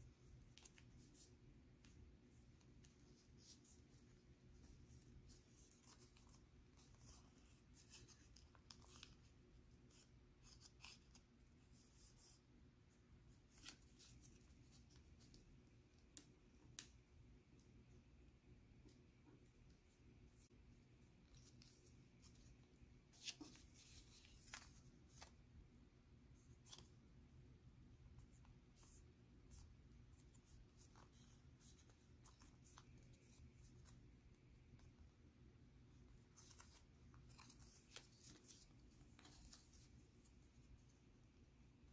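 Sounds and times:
low room hum: 0.0s - 41.9s
paper rustling and creasing: 0.4s - 12.4s, 21.2s - 25.4s, 36.1s - 40.9s
paper rustling and crinkling: 21.2s - 25.4s, 36.2s - 40.9s.

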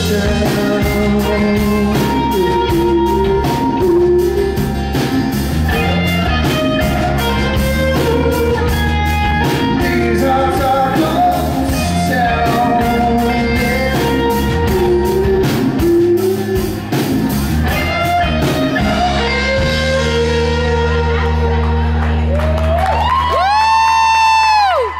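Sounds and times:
man singing: 0.0s - 4.8s, 5.7s - 8.8s, 9.4s - 17.0s
rock band playing: 0.0s - 24.9s.

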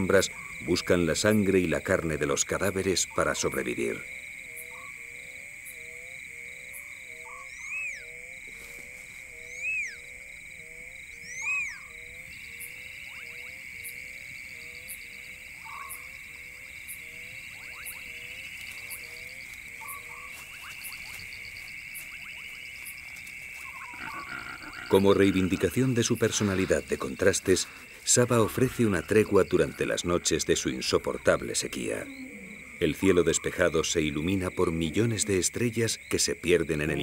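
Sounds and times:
fast pulsing insect trill: 0.0s - 37.0s
frogs croaking: 0.0s - 37.0s
high insect trill: 0.0s - 37.0s
rising-and-falling calls: 23.6s - 25.8s.

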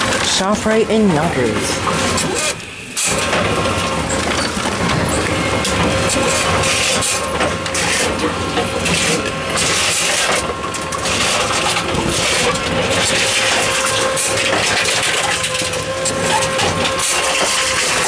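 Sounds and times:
steady machine hum: 0.0s - 18.0s
plastic bottles crushing crackle: 5.8s - 18.0s.

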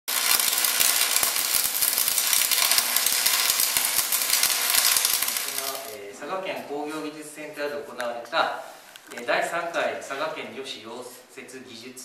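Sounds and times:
welding arc crackling and popping: 0.0s - 6.0s.

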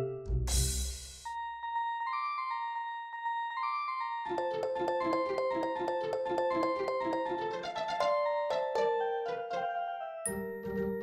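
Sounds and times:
bass drum with cymbal crash: 0.5s - 1.3s.

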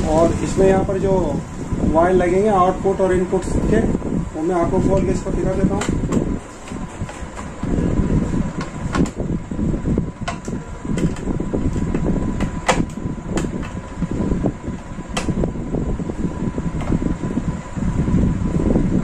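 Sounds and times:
low background rumble: 0.0s - 19.0s
screwdriver clicks and taps on metal: 10.2s - 11.2s.

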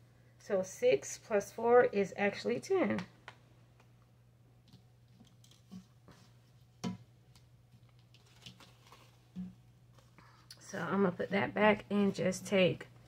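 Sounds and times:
low steady hum: 0.0s - 13.0s
paper rustling on tabletop: 7.7s - 9.3s.

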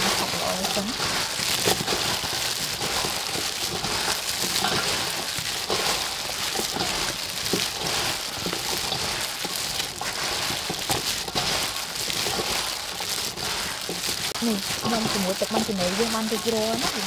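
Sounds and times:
plastic gloves crinkling: 0.0s - 17.0s
wet vegetables rustling: 0.0s - 17.0s.

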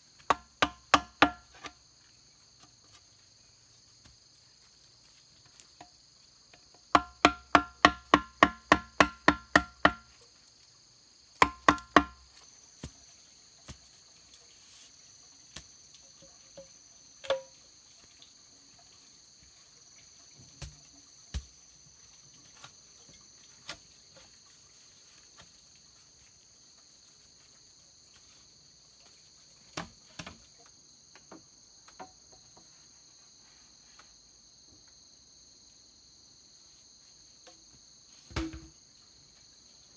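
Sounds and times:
high insect chorus: 0.0s - 39.9s
wood knocking on hollow bamboo: 0.2s - 1.8s, 5.8s - 10.2s, 11.4s - 13.0s, 16.6s - 17.6s, 38.3s - 38.8s.

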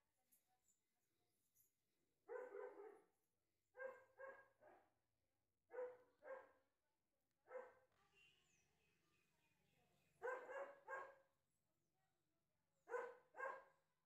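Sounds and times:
faint dog barking: 2.3s - 3.1s, 3.8s - 4.9s, 5.7s - 6.6s, 7.5s - 8.0s, 10.2s - 11.3s, 12.9s - 13.8s.

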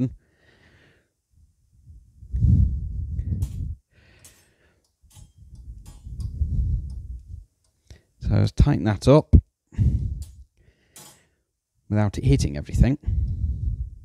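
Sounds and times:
antenna base clicking and scraping: 3.2s - 8.0s
breaths on microphone: 13.0s - 14.0s.

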